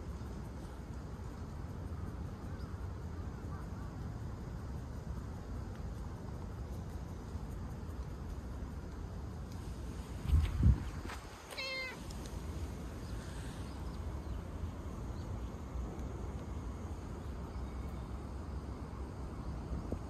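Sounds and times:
steady low rumble: 0.0s - 20.0s
cat meowing: 11.5s - 12.0s.

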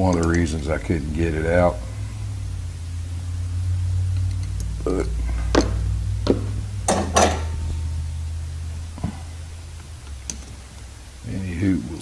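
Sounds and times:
steady low hum: 0.0s - 12.0s
small metallic clicks and taps: 0.1s - 0.5s, 9.8s - 10.6s.

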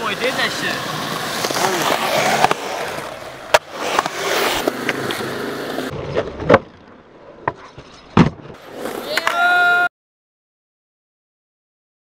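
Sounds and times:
skateboard wheels rolling on concrete: 0.0s - 9.9s
skateboard clacking on concrete: 0.5s - 2.7s, 3.5s - 5.8s.

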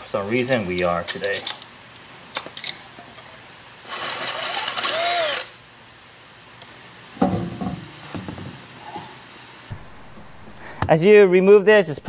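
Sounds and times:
heavy knock: 9.7s - 10.9s.

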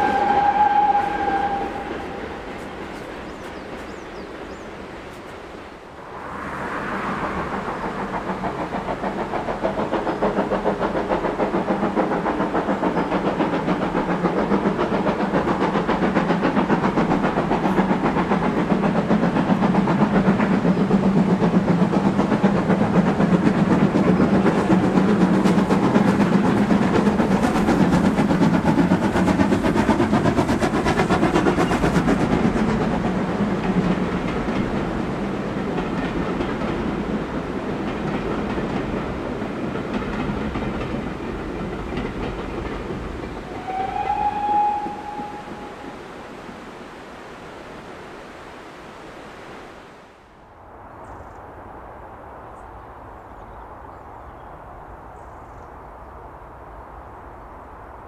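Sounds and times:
steam locomotive exhaust beating: 0.0s - 47.4s
wheels clattering on rails: 6.2s - 46.5s.

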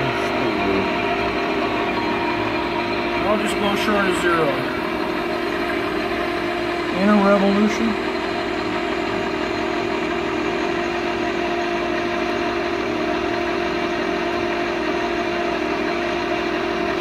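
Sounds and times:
lathe machine hum: 0.0s - 17.0s.

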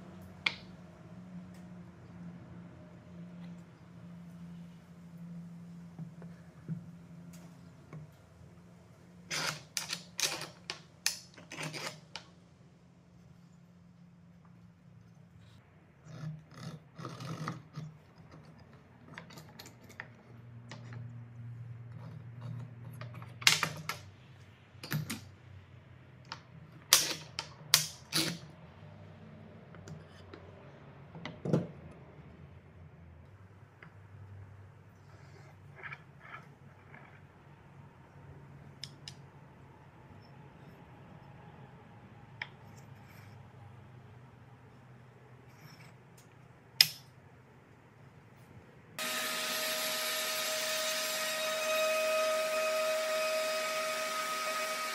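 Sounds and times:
metal rod and nut clicking: 45.6s - 47.1s.

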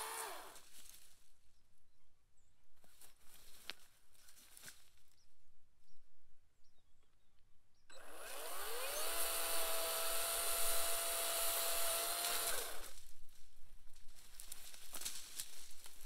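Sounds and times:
electric chainsaw whine: 0.0s - 0.6s, 7.9s - 13.0s.

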